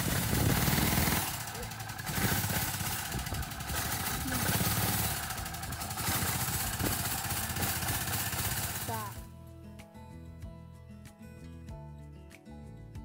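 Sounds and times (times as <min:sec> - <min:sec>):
engine running steadily: 0:00.0 - 0:09.3.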